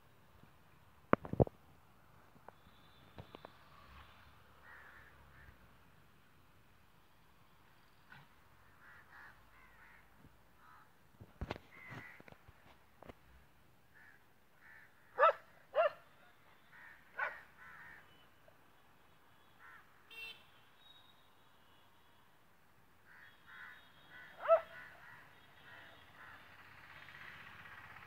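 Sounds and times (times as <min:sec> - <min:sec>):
crows cawing: 0:04.6 - 0:05.6, 0:08.6 - 0:12.4, 0:13.9 - 0:15.9, 0:16.6 - 0:18.2, 0:19.6 - 0:20.0, 0:23.0 - 0:26.6.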